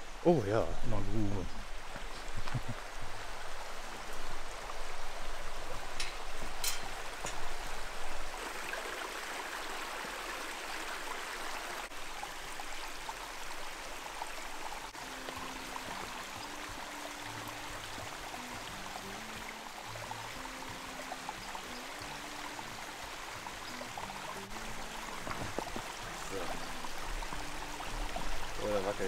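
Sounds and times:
stream flowing: 0.0 - 29.0
soft background music: 14.6 - 29.0.

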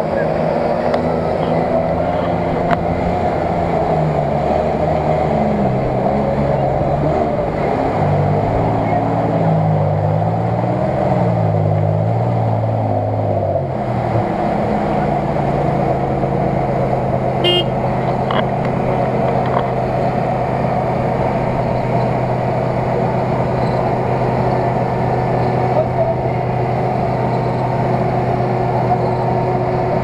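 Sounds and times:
engine revving: 0.0 - 30.0
outdoor background noise: 0.0 - 30.0
short high toot: 17.4 - 17.8.

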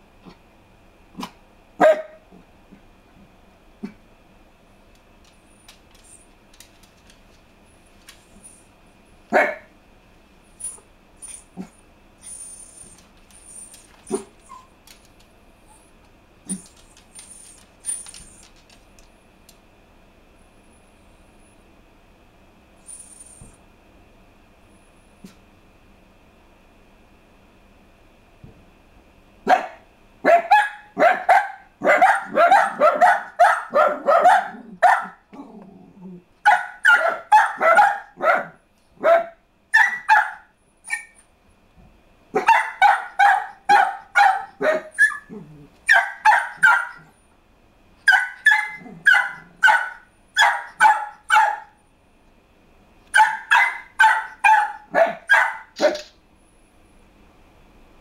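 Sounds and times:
dog barking: 1.2 - 2.2, 9.3 - 9.7, 29.5 - 35.2, 36.4 - 41.2, 42.4 - 45.3, 45.9 - 47.1, 48.1 - 51.8, 53.1 - 56.1.

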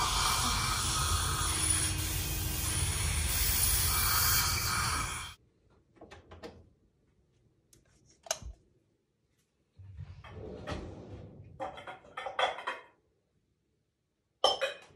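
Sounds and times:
suction hose rushing hiss: 0.0 - 5.4.

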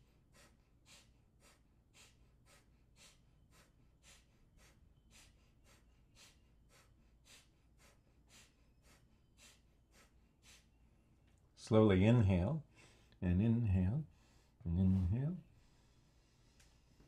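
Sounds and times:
rapid nasal exhalations: 0.0 - 11.1.

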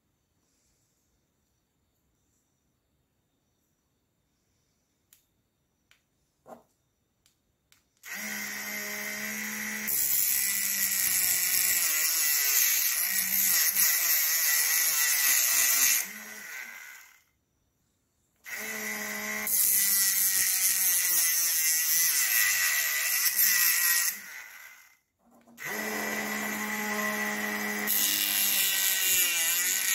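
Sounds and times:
mini grinder whirring: 8.0 - 17.3, 18.4 - 29.9.

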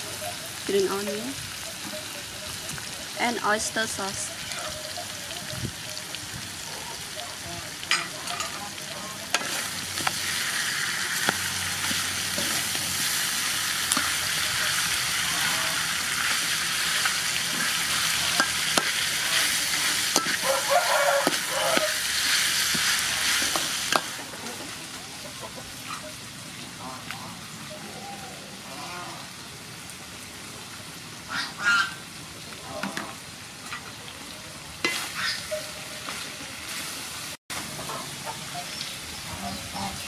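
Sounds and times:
food sizzling in a wok: 0.0 - 26.8, 27.4 - 40.0
metal spatula scraping a pan: 7.9 - 24.8.

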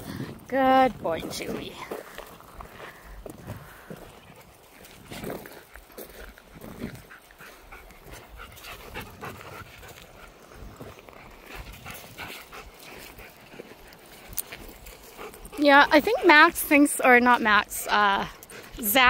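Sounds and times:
footsteps on gravel: 0.6 - 19.0
dog panting: 1.6 - 19.0.

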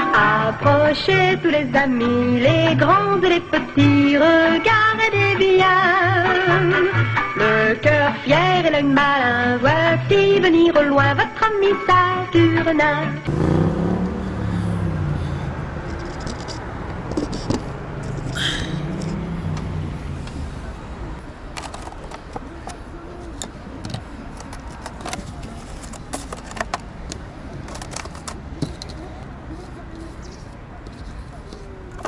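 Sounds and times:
traffic noise: 0.0 - 32.0
vehicle droning past: 13.2 - 21.2
metal connectors and tools rattling: 15.9 - 19.2, 21.5 - 22.8, 23.4 - 29.0.

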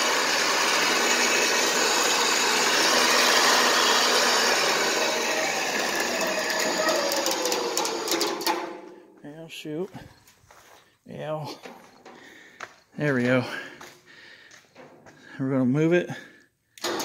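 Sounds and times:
electric winch motor running: 0.0 - 9.0, 16.8 - 17.0.

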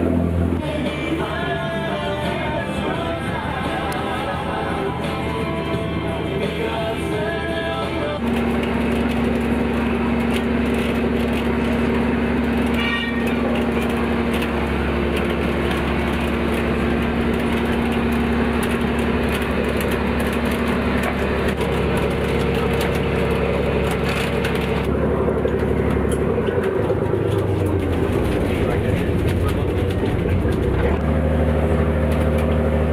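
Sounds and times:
boat engine hum: 0.0 - 32.9
winch drone: 7.5 - 32.9.

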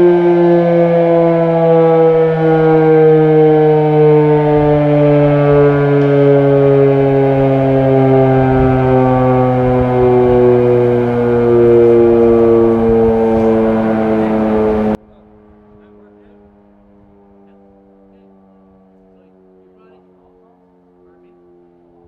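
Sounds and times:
fire siren winding down: 0.0 - 22.0.

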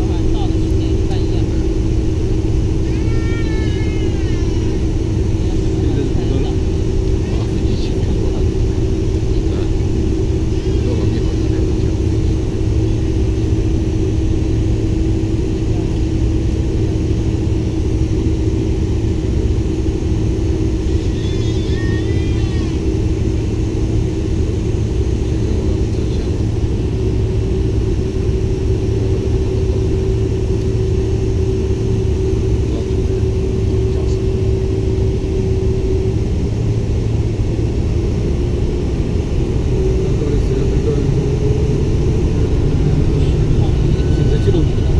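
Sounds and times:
airplane cabin rumble: 0.0 - 44.9.

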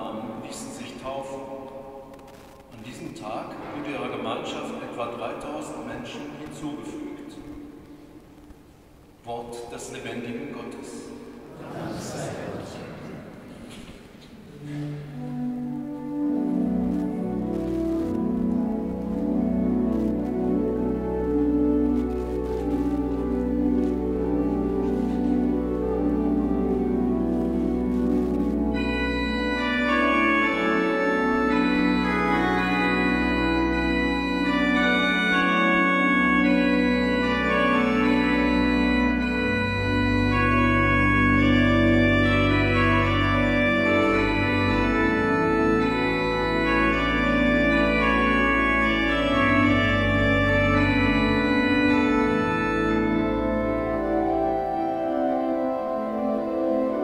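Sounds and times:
pipe organ chords: 0.0 - 57.0.

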